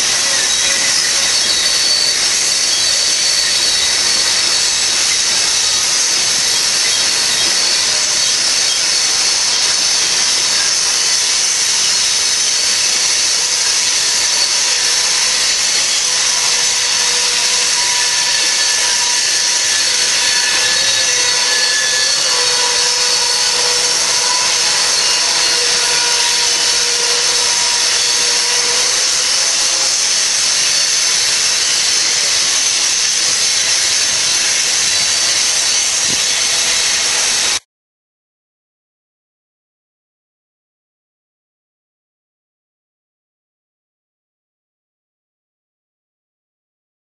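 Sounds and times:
faint high wheel squeal: 0:00.0 - 0:37.6
freight cars rolling hiss: 0:00.1 - 0:37.6.

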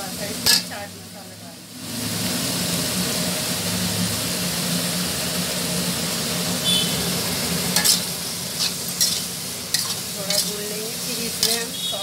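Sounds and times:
vegetables sizzling in a pan: 0:00.0 - 0:12.0
spatula scraping: 0:07.7 - 0:11.8.

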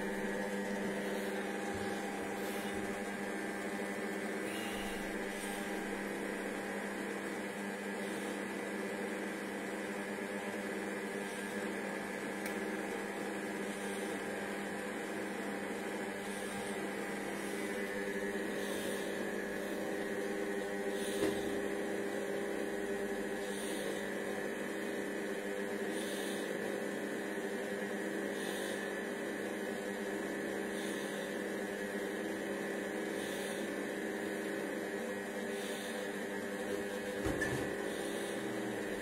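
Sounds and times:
kitchen robot motor humming: 0:00.0 - 0:06.6, 0:16.1 - 0:21.9, 0:36.7 - 0:39.0.

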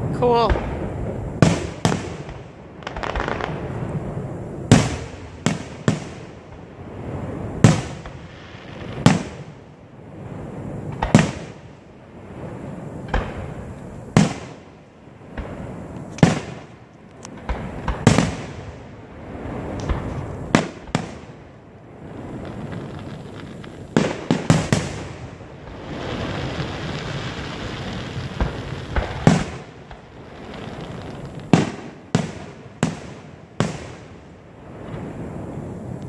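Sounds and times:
firework shells bursting: 0:22.2 - 0:34.1.

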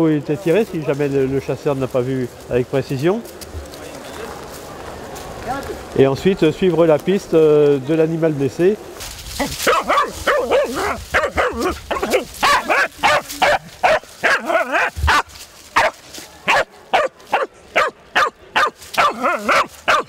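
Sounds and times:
small dog barking and yelping: 0:09.5 - 0:20.0.

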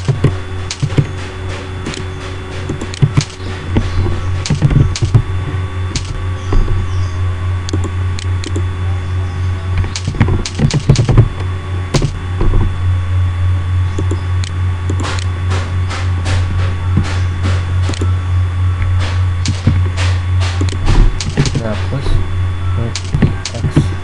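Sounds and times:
keyboard keystrokes: 0:00.0 - 0:05.3, 0:05.9 - 0:06.8, 0:07.7 - 0:08.6, 0:09.8 - 0:11.3, 0:12.0 - 0:12.7, 0:14.0 - 0:15.3, 0:18.8 - 0:21.7, 0:22.9 - 0:23.8
low electrical hum: 0:00.0 - 0:24.0
mouse clicks: 0:07.7 - 0:08.6, 0:13.9 - 0:15.3.

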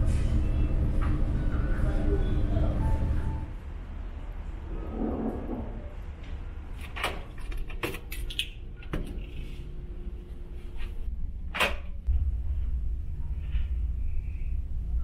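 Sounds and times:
ship's low hum: 0:08.7 - 0:15.0.

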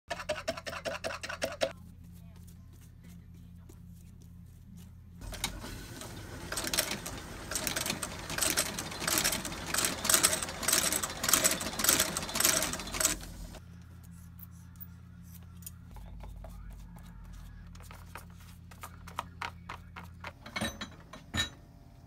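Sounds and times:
stitching machine running: 0:05.2 - 0:13.6.

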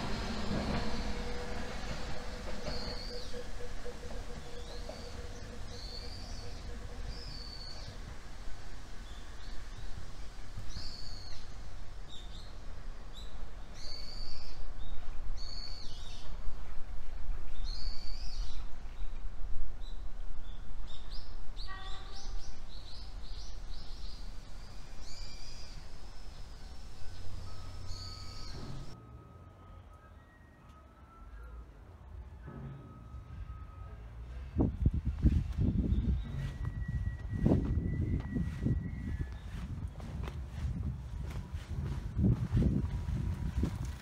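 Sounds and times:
birds calling: 0:00.0 - 0:08.2
steady low rumble: 0:00.0 - 0:13.8, 0:32.1 - 0:44.0.

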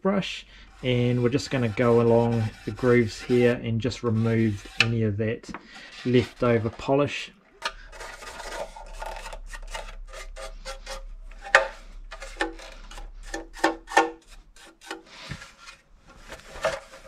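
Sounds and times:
toothbrush scrubbing plastic: 0:00.7 - 0:05.0, 0:05.7 - 0:06.9, 0:07.7 - 0:15.8.

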